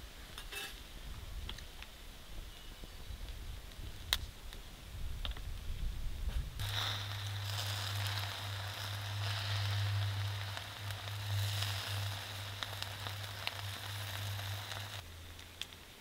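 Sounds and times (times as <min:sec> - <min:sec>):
fat popping and crackling: 0:06.2 - 0:16.0
steady low hum: 0:06.3 - 0:16.0
meat sizzling on a grill: 0:06.6 - 0:15.0.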